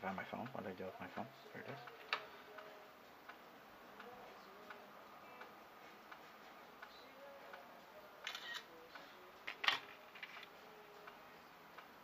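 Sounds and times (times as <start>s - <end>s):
phone camera shutter click: 8.3s - 8.7s.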